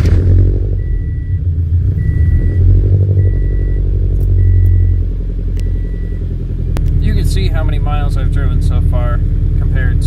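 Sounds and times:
car engine idling: 0.0s - 10.0s
car warning chime beeping: 0.7s - 6.4s.

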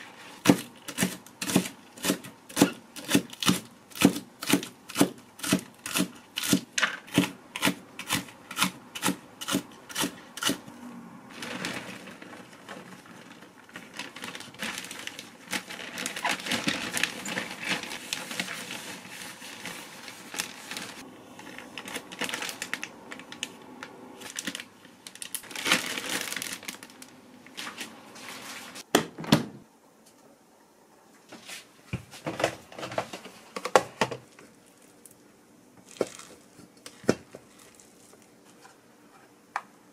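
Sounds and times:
plastic bag crinkling: 11.3s - 23.6s, 24.2s - 28.8s, 35.8s - 36.6s, 37.3s - 38.4s.

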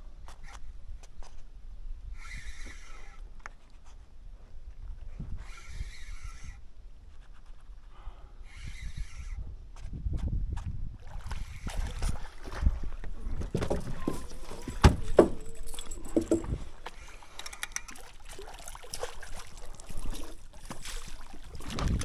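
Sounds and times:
fishing gear knocks and rattles: 11.9s - 22.0s.

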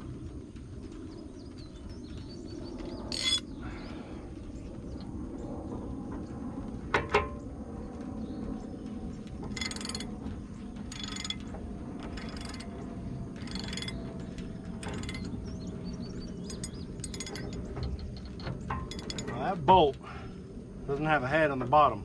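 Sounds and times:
sharp metal clinks: 3.1s - 3.4s, 16.4s - 19.5s.

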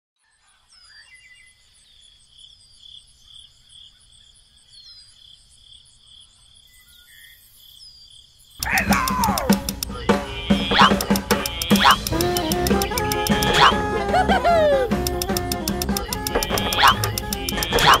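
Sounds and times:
crickets chirping: 1.4s - 13.8s.

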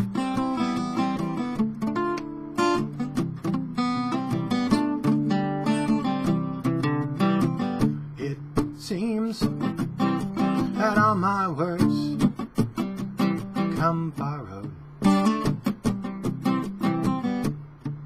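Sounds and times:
acoustic guitar strumming: 0.0s - 18.0s
man singing: 8.2s - 12.4s, 13.6s - 14.9s.

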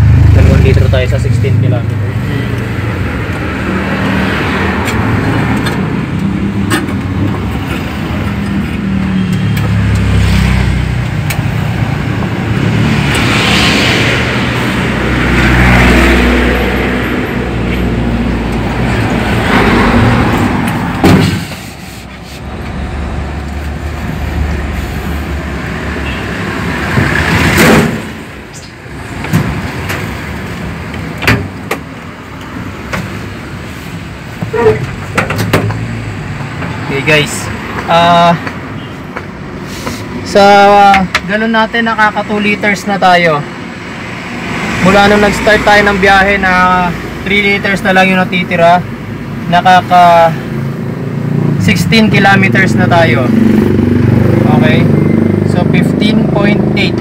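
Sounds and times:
car engine under load: 0.0s - 57.0s
road and wind noise: 0.0s - 57.0s
sharp knocks: 20.6s - 21.5s.

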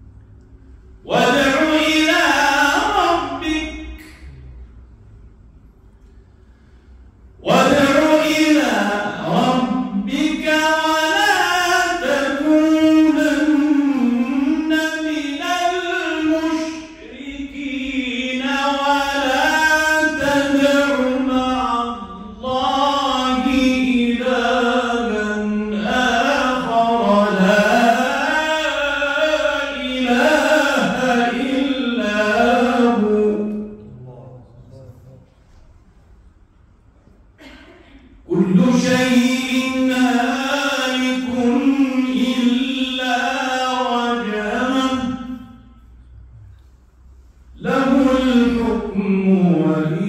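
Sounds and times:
man reciting melodically into microphone: 1.0s - 4.3s, 7.4s - 35.3s, 38.2s - 46.5s, 47.1s - 50.0s
short breaths: 6.0s - 7.4s.

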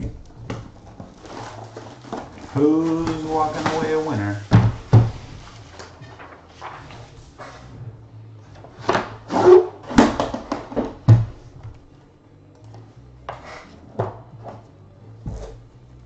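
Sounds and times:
cardboard box scraping and rustling: 0.8s - 4.4s.

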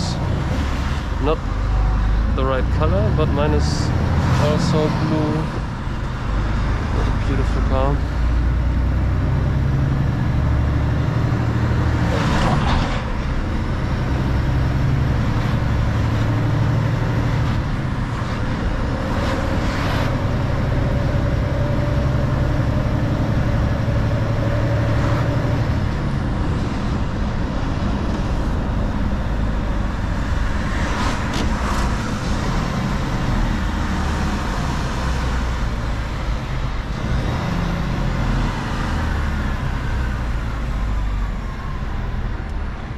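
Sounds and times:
truck diesel engine running: 0.0s - 12.1s
passing traffic whooshes: 0.0s - 42.9s
tyre and road noise: 0.0s - 42.9s.

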